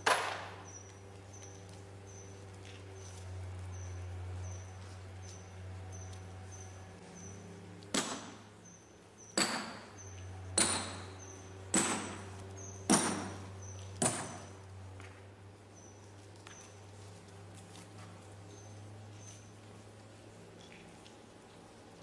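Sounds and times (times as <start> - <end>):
sledgehammer striking steel wedges: 7.9 - 8.4, 9.3 - 14.5.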